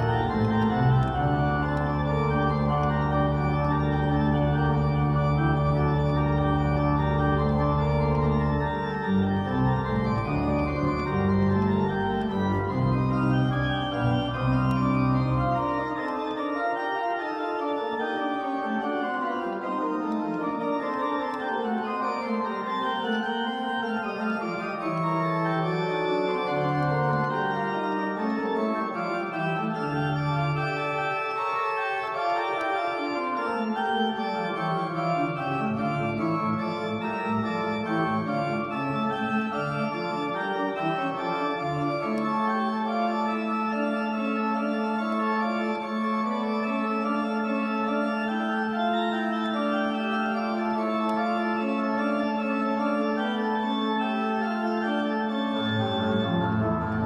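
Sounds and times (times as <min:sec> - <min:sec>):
deep organ bass notes: 0:00.0 - 0:16.0
church organ chords: 0:00.0 - 0:57.0.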